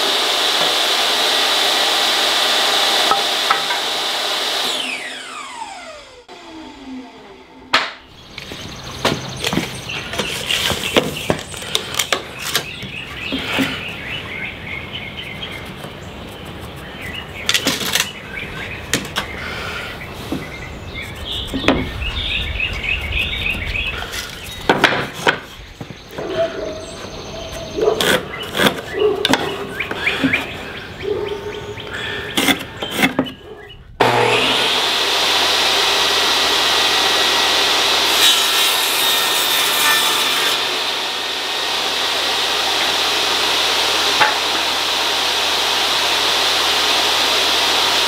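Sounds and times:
songbirds chirping: 8.0s - 34.0s.

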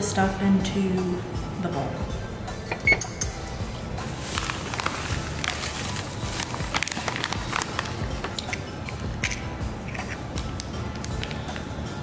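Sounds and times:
background music: 0.0s - 12.0s
oven keypad beep: 2.7s - 3.2s
dry mix poured into bowl: 4.2s - 8.0s.

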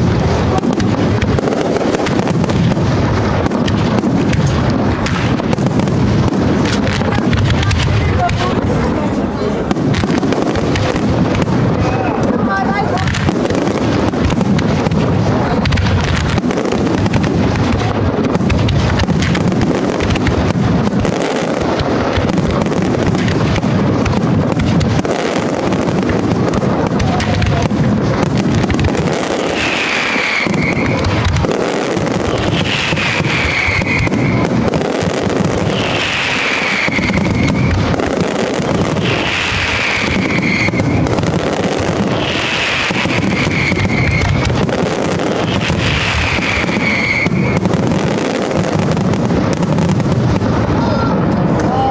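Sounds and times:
fireworks bangs and crackling: 0.0s - 51.9s
falling whistle-like tone: 46.4s - 47.6s.

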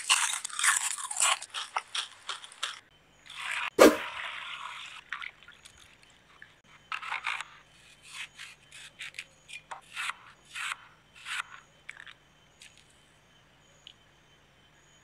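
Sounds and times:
knife crunching through apple: 0.0s - 2.8s
sharp knock: 3.8s - 4.1s.

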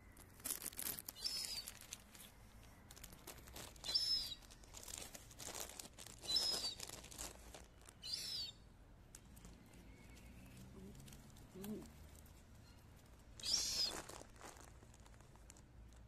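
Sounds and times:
light clicks and rustles: 0.1s - 8.0s.

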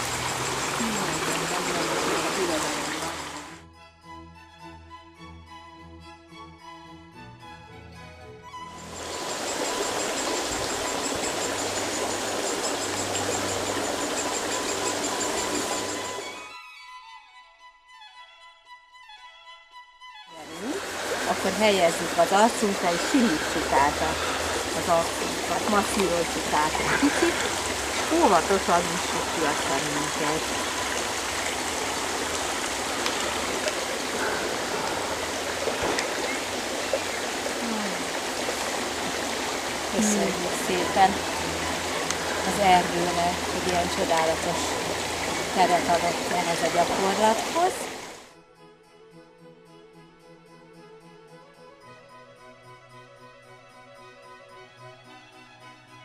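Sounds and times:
stream running over stones: 0.0s - 3.6s, 8.8s - 16.4s, 20.4s - 48.3s.

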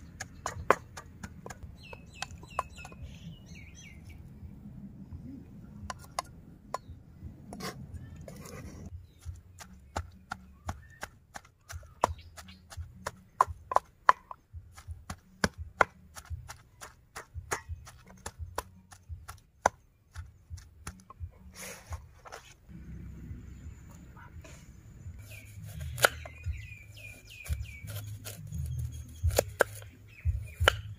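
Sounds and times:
wooden pestle pounding in mortar: 0.0s - 3.0s, 9.2s - 21.1s, 27.4s - 30.9s.

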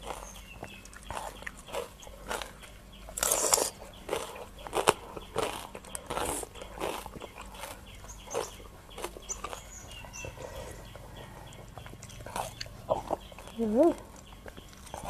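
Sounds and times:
chewing and crunching: 0.0s - 15.0s.

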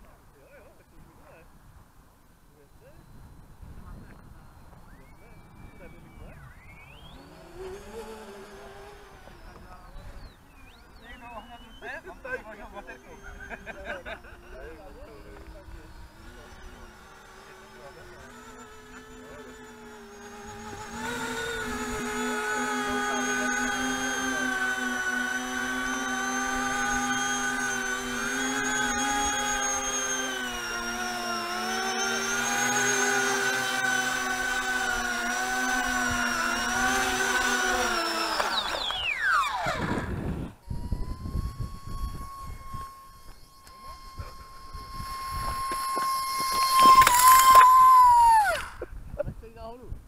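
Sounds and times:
model jet motor whining: 2.6s - 49.8s
wind rumble on microphone: 3.0s - 6.6s, 39.7s - 43.2s, 48.8s - 50.0s.

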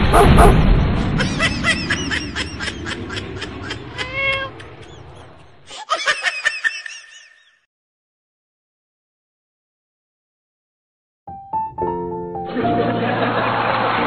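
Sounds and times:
low rumble: 0.0s - 5.6s
kitten chirping: 3.6s - 4.9s
kitten meowing: 3.7s - 4.7s.

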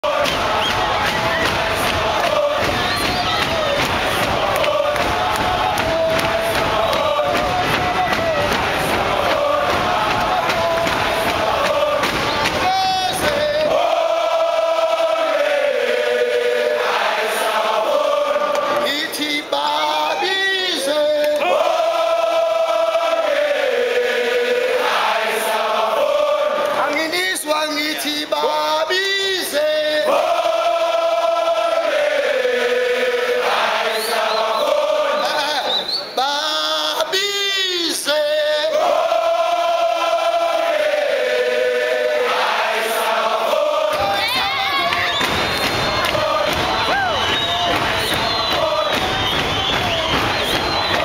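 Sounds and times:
large choir chanting in unison: 0.0s - 51.0s.

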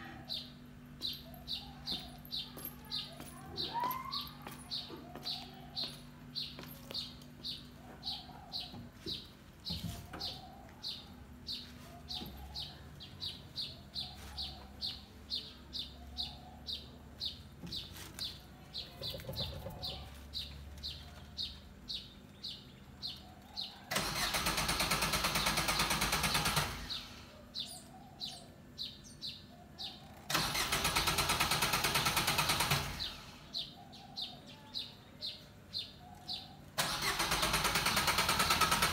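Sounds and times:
bird chirping: 0.2s - 24.0s, 26.9s - 30.7s, 33.0s - 37.0s
car starter cranking engine: 23.9s - 27.3s, 30.3s - 33.6s, 36.8s - 38.9s.

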